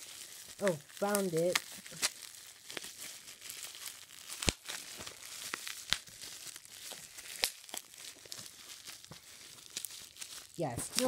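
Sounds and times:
bubble wrap crinkling: 0.0 - 11.0.

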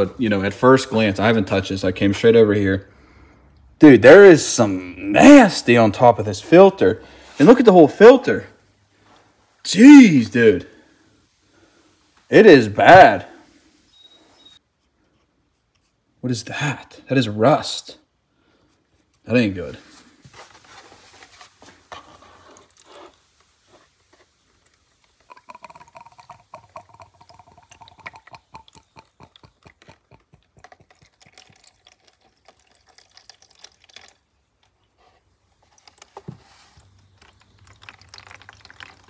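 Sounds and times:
fuel trickling and dripping: 22.6 - 39.0.

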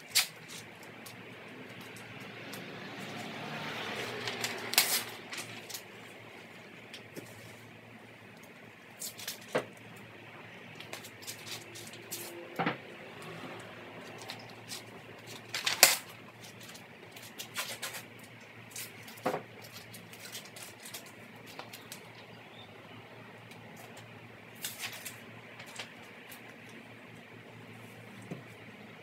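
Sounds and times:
tape ripping: 0.0 - 1.2, 3.9 - 5.9, 9.0 - 9.6, 14.2 - 18.1, 24.6 - 25.9
paper crinkling: 3.9 - 6.0, 10.8 - 12.3, 14.0 - 22.1, 24.6 - 26.4.

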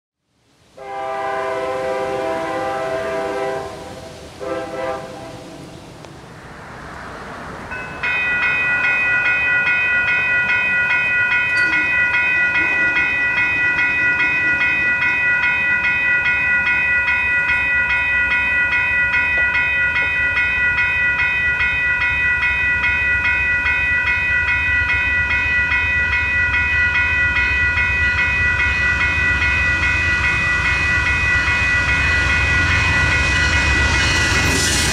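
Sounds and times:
low train rumble: 0.4 - 34.9
train horn blasts: 0.8 - 5.8
crossing warning bells ringing: 7.6 - 34.9.

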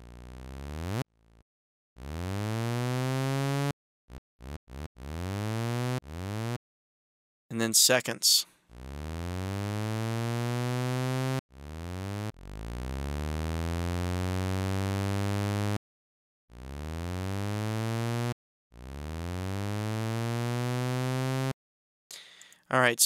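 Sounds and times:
synthesizer notes sweeping up: 8.8 - 15.8.

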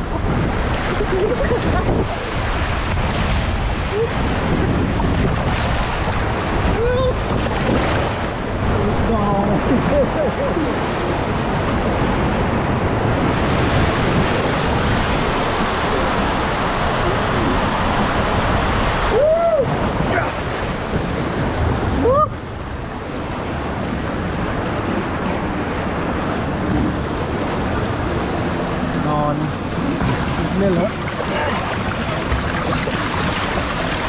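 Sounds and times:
water rushing: 0.0 - 34.0
wind buffeting microphone: 0.0 - 34.0.

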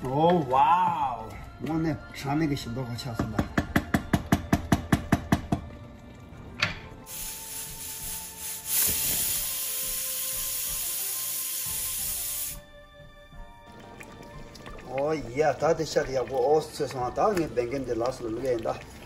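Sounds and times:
wooden spoon knocking against pot: 3.1 - 5.7
steam hissing from pressure cooker: 7.0 - 12.6.

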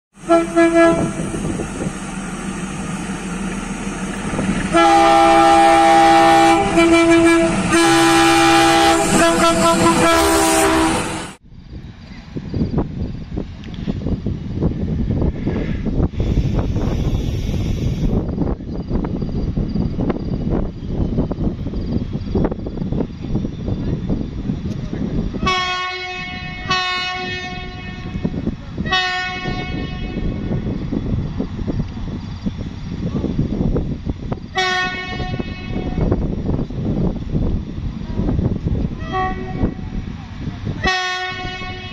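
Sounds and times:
diesel locomotive engine rumbling: 0.1 - 41.9
train horn blasts: 0.2 - 1.5, 4.7 - 11.4, 25.4 - 30.7, 34.5 - 36.2, 39.0 - 39.9, 40.8 - 41.9.

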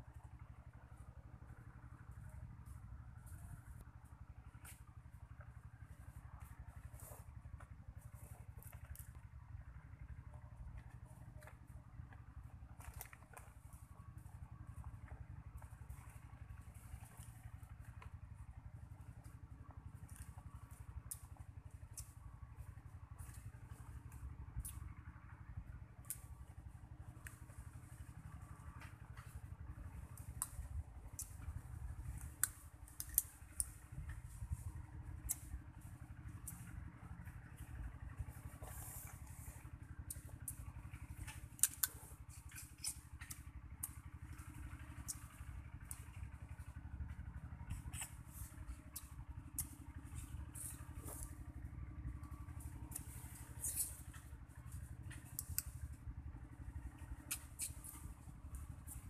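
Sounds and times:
small sharp cracks: 30.1 - 34.3.

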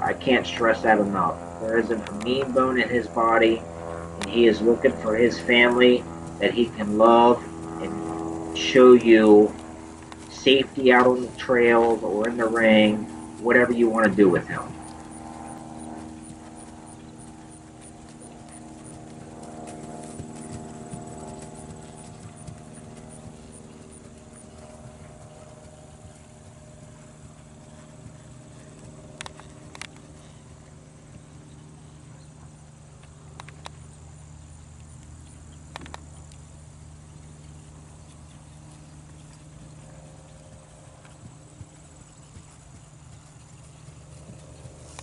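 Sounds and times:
hoofbeats on dirt: 0.0 - 45.0
steady low hum: 0.0 - 45.0
sharp clicks: 28.8 - 30.1, 33.0 - 33.8, 35.7 - 36.4.

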